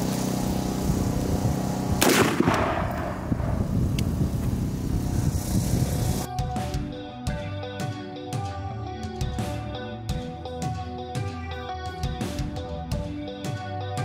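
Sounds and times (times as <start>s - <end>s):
low engine hum: 0.0s - 6.3s
rifle shot echoing: 2.0s - 3.6s.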